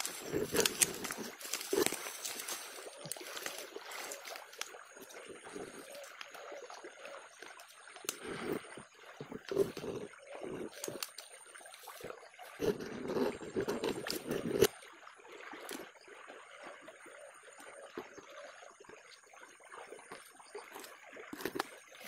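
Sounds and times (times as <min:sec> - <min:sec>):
dry reeds rustling: 0:00.0 - 0:07.2, 0:09.4 - 0:14.4
fast river flowing: 0:00.0 - 0:07.6.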